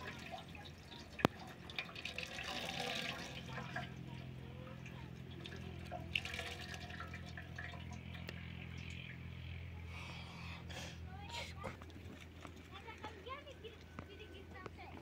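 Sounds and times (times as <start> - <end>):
water dripping into metal basin: 0.0 - 9.5.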